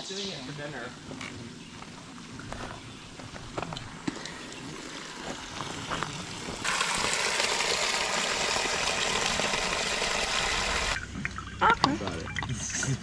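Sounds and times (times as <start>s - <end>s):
water gushing from a pipe: 4.1s - 11.0s.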